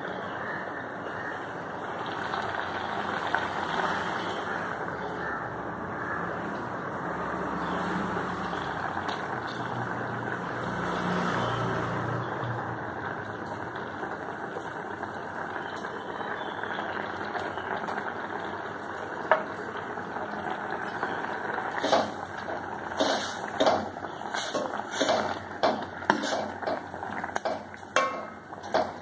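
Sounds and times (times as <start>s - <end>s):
gas stove burners rushing: 16.8s - 29.0s.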